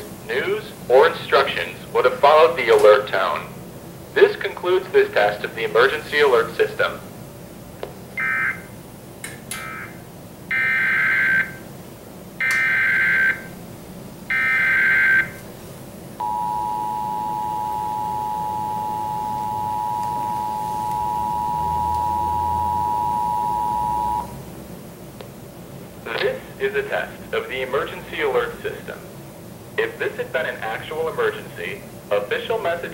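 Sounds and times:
two-tone attention signal: 16.2 - 24.3.

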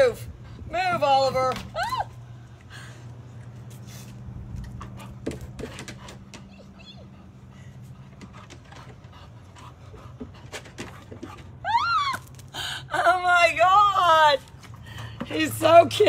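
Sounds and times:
steady low hum: 0.0 - 11.7
dog panting: 4.8 - 11.6.

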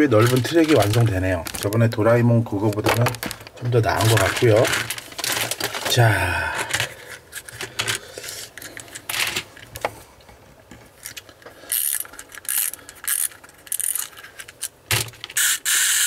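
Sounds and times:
clockwork toy being wound: 11.7 - 14.7, 15.4 - 16.0
toy train set on track: 15.4 - 16.0.

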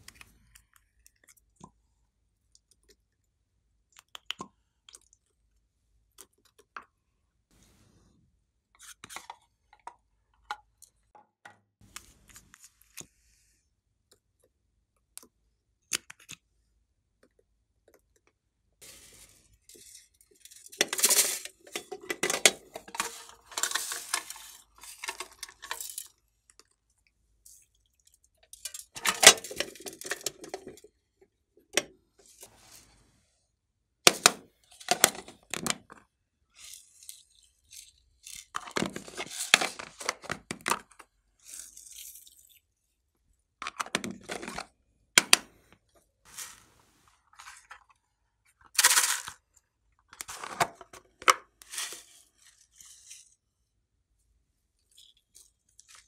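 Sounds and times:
plastic and glass clinking: 19.7 - 26.2, 28.5 - 30.9.

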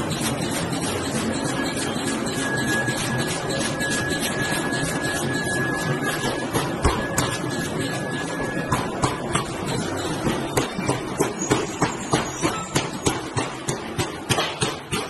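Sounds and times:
steady machinery noise: 0.0 - 15.0
metallic knocks: 5.8 - 15.0.

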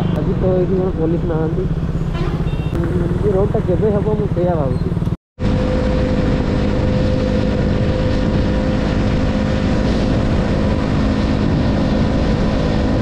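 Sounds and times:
motorcycle engine cruising: 0.0 - 13.0
wind noise: 4.7 - 13.0.

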